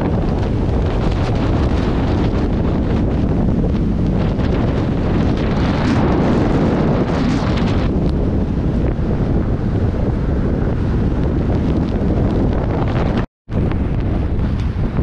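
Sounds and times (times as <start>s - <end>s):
tyres rumbling on road: 0.0s - 15.0s
wind buffeting microphone: 0.0s - 15.0s.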